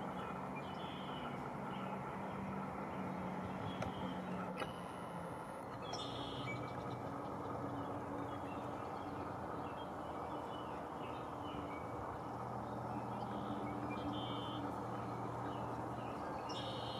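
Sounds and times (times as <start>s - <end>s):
low drone with hum: 0.0s - 16.9s
faint bird chirps: 5.8s - 11.9s, 12.9s - 16.9s.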